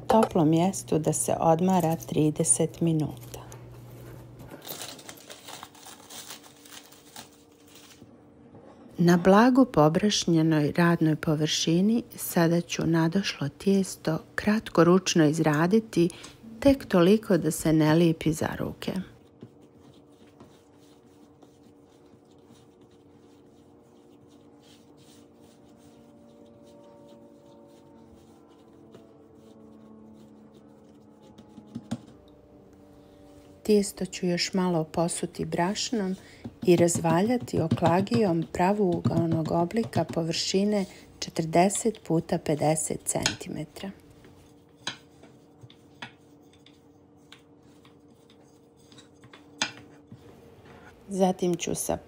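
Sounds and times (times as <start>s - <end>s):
faint steady hum: 0.0s - 52.0s
hands kneading dough: 16.9s - 32.2s, 33.8s - 50.4s.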